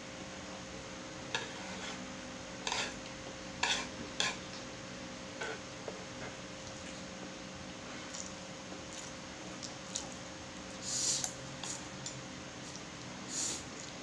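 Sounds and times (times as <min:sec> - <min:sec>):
chopsticks scraping and clicking: 0:01.3 - 0:02.0, 0:02.6 - 0:03.0, 0:03.6 - 0:04.6.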